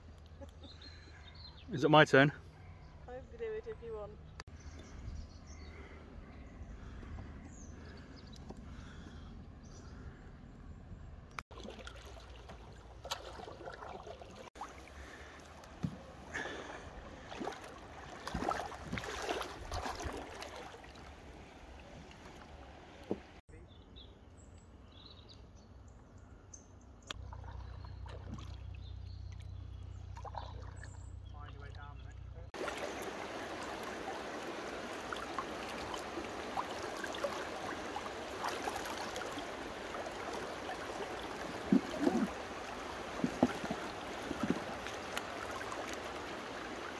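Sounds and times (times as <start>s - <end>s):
canoe paddle strokes: 11.5s - 23.4s, 32.6s - 46.9s
light splashing: 11.5s - 23.4s, 32.6s - 46.9s
river water trickling over rocks: 11.5s - 23.4s, 32.6s - 46.9s.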